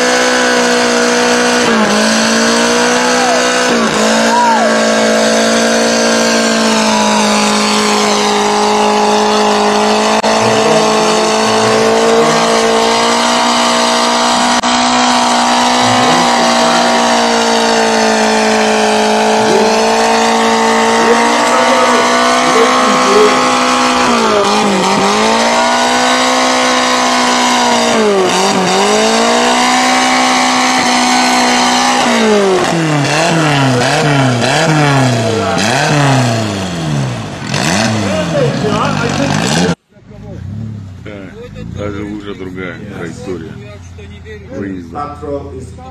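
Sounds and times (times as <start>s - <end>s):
truck engine revving: 0.0s - 45.9s.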